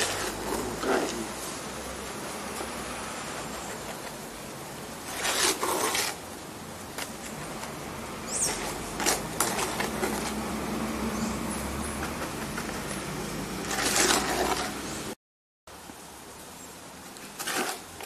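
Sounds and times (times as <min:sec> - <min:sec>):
trowel scraping wet concrete: 0:00.0 - 0:01.4, 0:05.0 - 0:06.3, 0:07.0 - 0:10.5, 0:11.8 - 0:15.0, 0:17.2 - 0:18.0.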